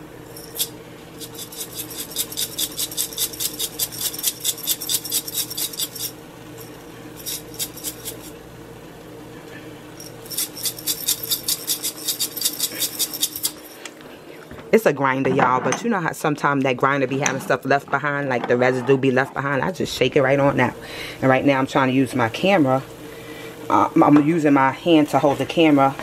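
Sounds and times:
steady low hum: 0.0 - 26.0
seasoning grinder clicking: 0.5 - 6.2, 7.2 - 8.3, 10.3 - 13.9.

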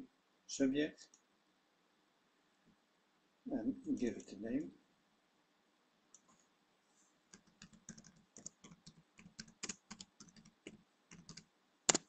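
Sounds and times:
typing on computer keyboard: 7.3 - 12.0.

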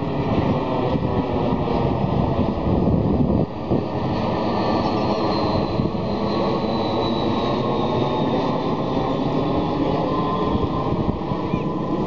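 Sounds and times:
faint high jet whine: 0.0 - 12.0
jet airliner passing overhead: 0.0 - 12.0.

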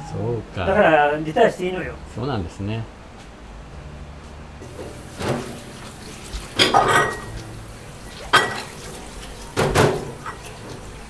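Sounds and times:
dishes clattering in a steel sink: 4.6 - 11.0.

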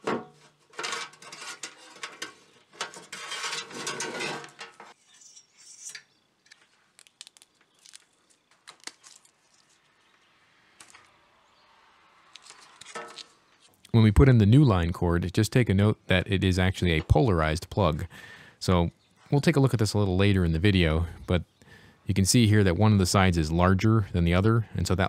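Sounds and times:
cord scraping through metal case: 0.7 - 4.9.

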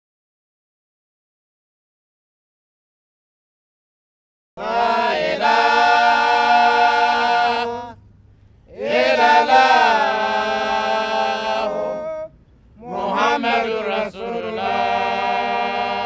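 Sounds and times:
unaccompanied devotional chant: 4.6 - 16.0.

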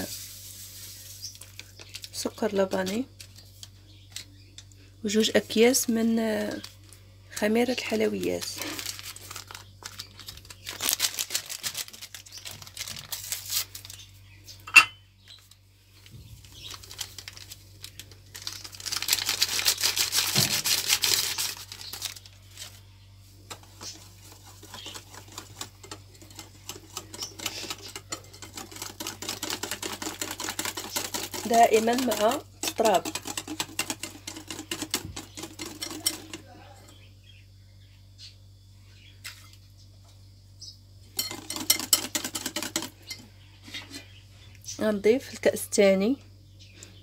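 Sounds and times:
whisk beating batter in glass bowl: 23.5 - 36.6, 41.2 - 43.2.

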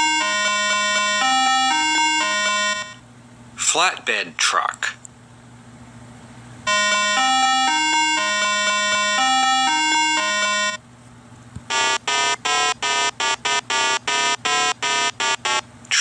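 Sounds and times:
electronic melody: 0.0 - 3.0, 6.7 - 10.8, 11.7 - 15.6.

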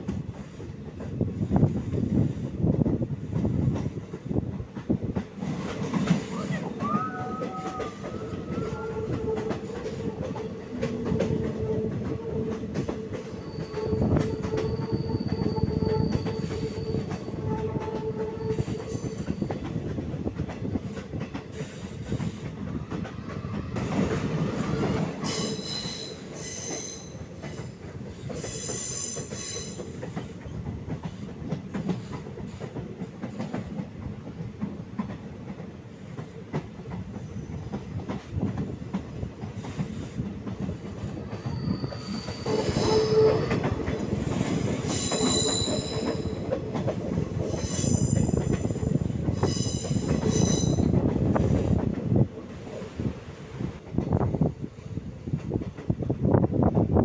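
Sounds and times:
train wheels clattering on rails: 0.0 - 57.0
high-pitched wheel squeal: 6.8 - 9.4, 13.4 - 17.4, 25.3 - 27.1, 41.4 - 43.6, 44.9 - 46.4.

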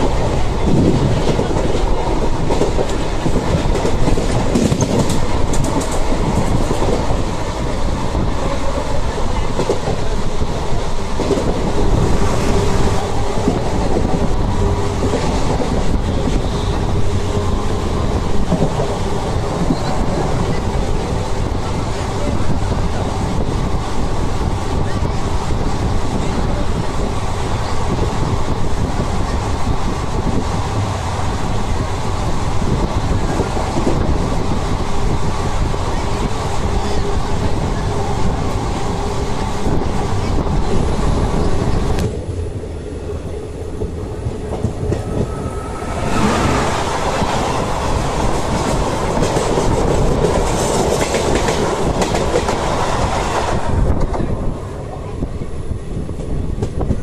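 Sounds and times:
train wheels clattering: 0.0 - 7.4, 44.5 - 54.3
train rumble and rushing air: 0.0 - 57.0.

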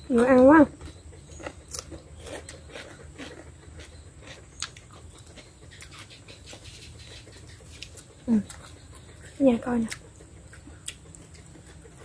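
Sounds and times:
chewing and crisp bites: 0.2 - 12.0.

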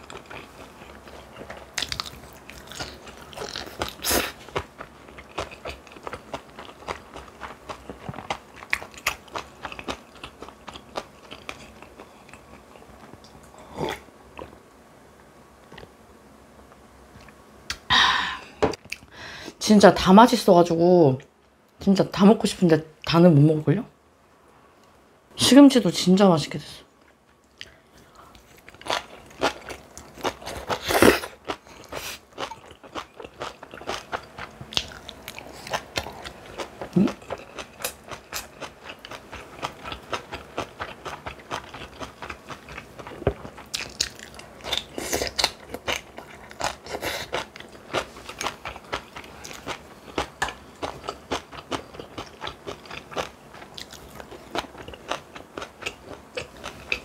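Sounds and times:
person chewing and crunching food: 0.0 - 14.6, 27.0 - 57.0.

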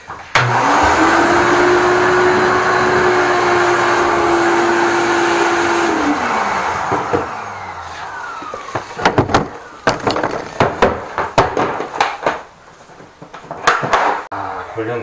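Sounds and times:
shop vacuum running: 0.0 - 9.9
vacuum motor winding down: 0.4 - 9.8.

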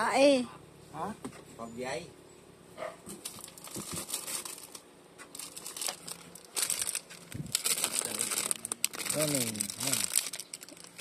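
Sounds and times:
packaging crinkling: 3.2 - 11.0.

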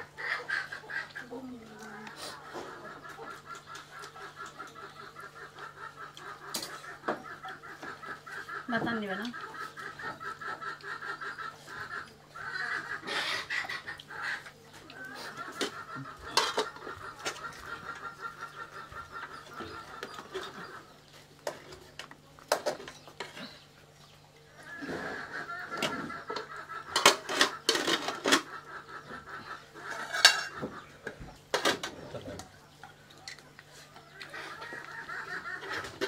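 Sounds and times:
metal spoon clinking on pots: 30.0 - 30.6.

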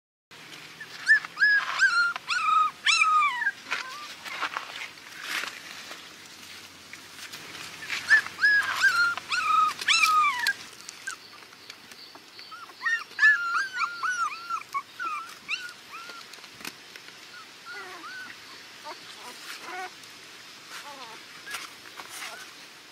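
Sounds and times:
puppies whimpering: 0.8 - 4.3, 7.8 - 11.4, 12.1 - 16.4, 17.3 - 19.9.

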